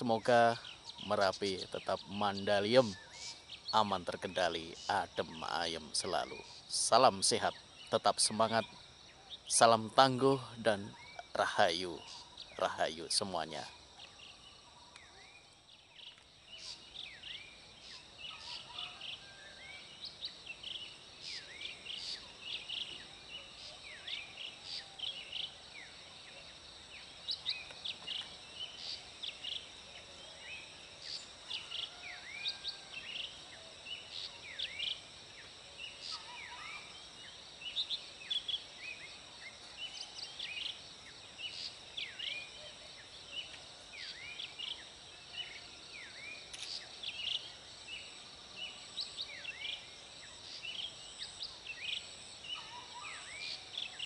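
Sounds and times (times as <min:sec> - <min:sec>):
birds chirping and whistling: 0:00.0 - 0:26.0, 0:50.5 - 0:54.0
high insect drone: 0:00.0 - 0:54.0.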